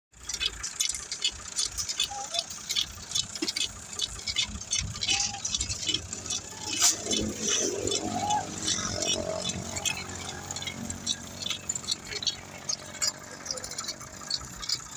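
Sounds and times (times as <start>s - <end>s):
tractor engine running low: 0.1s - 14.9s.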